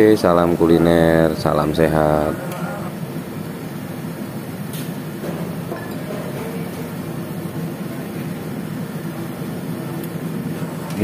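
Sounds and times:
gas burner roaring: 0:00.0 - 0:11.0.

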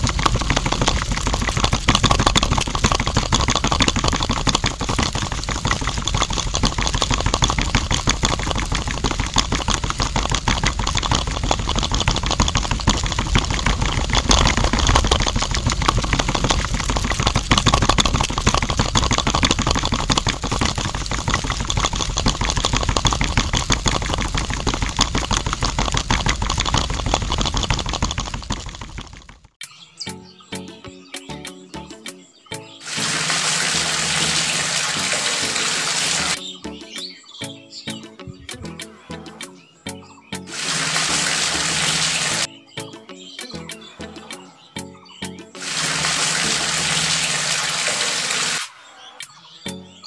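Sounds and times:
small electric motor rattling: 0:00.0 - 0:29.6, 0:32.8 - 0:36.4, 0:40.5 - 0:42.5, 0:45.6 - 0:48.7.

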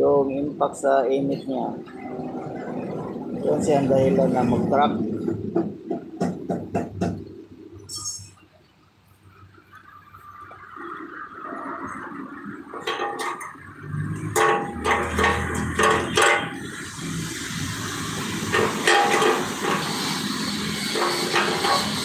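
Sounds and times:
welding arc crackling: 0:13.6 - 0:22.0.

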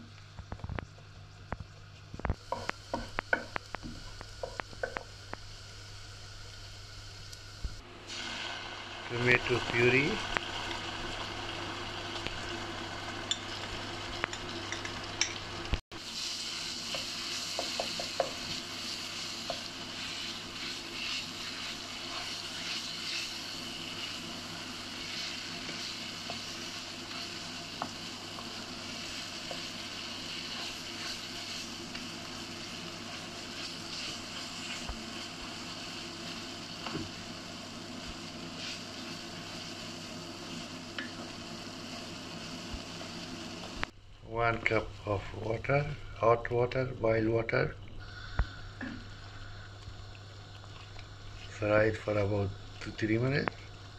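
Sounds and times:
sizzling in hot oil: 0:02.1 - 0:44.2, 0:48.0 - 0:53.9
wooden spoon scraping a pan: 0:16.5 - 0:37.2, 0:38.0 - 0:40.7.

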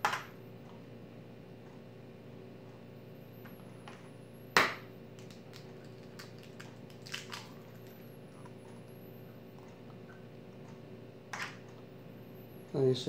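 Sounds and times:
eggshell cracking: 0:05.2 - 0:08.0.

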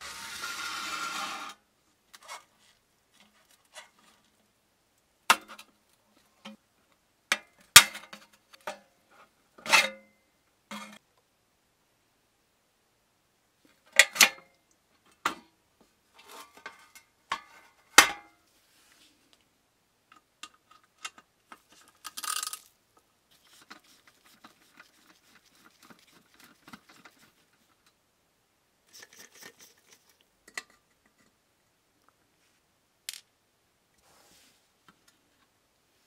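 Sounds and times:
metal scrape: 0:00.0 - 0:01.6.

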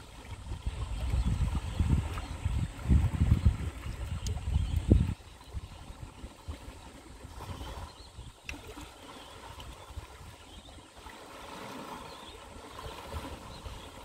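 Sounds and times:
water trickling among rocks: 0:00.0 - 0:06.7
wind rumble on microphone: 0:00.0 - 0:14.0.

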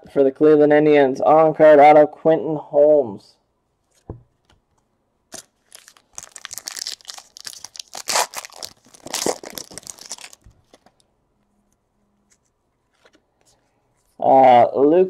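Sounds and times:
foil wrapper tearing and crinkling: 0:05.3 - 0:11.0.

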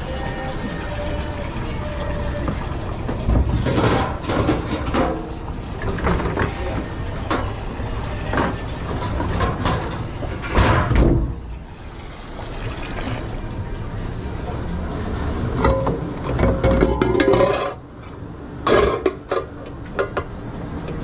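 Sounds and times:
dishes clattering: 0:03.2 - 0:06.6, 0:15.6 - 0:17.8, 0:18.7 - 0:20.3.

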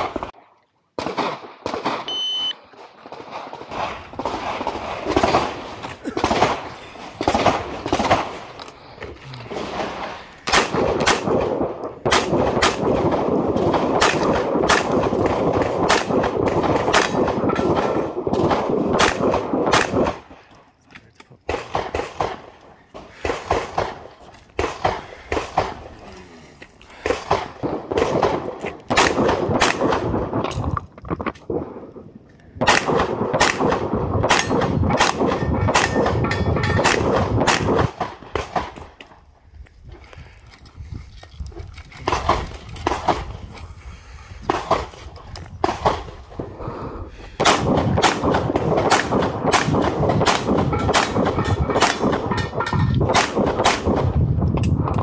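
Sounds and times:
pistol shots: 0:03.0 - 0:08.5, 0:09.6 - 0:20.3, 0:27.0 - 0:30.5, 0:32.6 - 0:38.9, 0:47.4 - 0:54.2.

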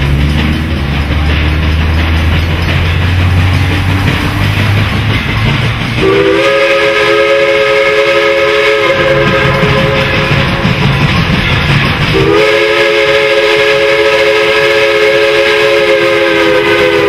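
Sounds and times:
steam locomotive rumble and hiss: 0:00.0 - 0:17.0
chime steam whistle blast: 0:06.0 - 0:11.1, 0:12.1 - 0:17.0.

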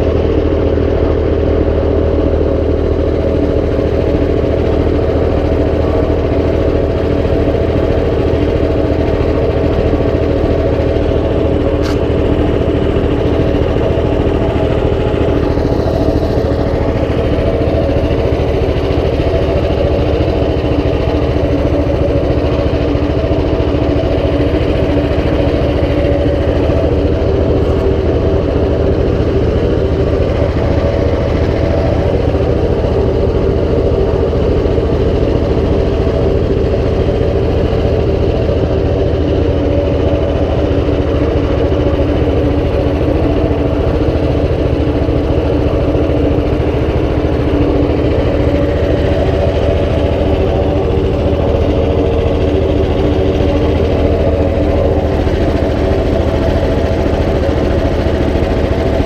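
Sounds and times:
wood chipper engine running: 0:00.0 - 0:59.0.

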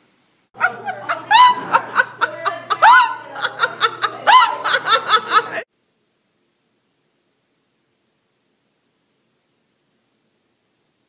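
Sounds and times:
woman laughing: 0:00.6 - 0:05.7.

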